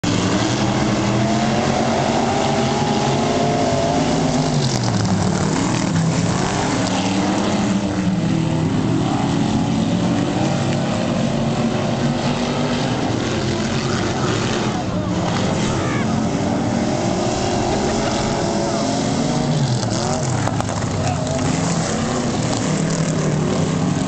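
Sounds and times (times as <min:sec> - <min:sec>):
race car engines racing: 0:00.0 - 0:24.0.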